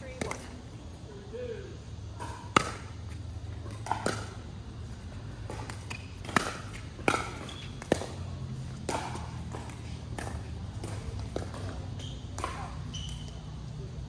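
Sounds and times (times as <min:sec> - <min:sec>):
ball bouncing on court: 0:00.0 - 0:00.5, 0:02.1 - 0:04.4, 0:05.4 - 0:13.4
paddles hitting plastic ball: 0:03.6 - 0:04.4, 0:05.4 - 0:13.3.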